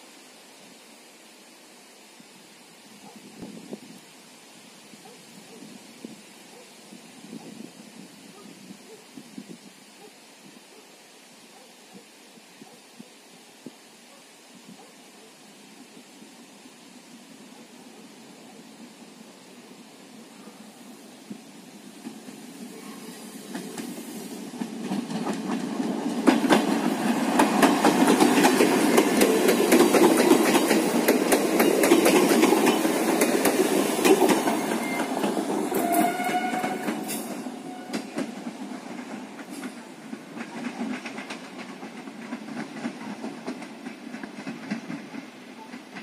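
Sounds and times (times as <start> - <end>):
train rumbling past: 15.8 - 46.0
wheels clicking over rail joints: 23.5 - 46.0.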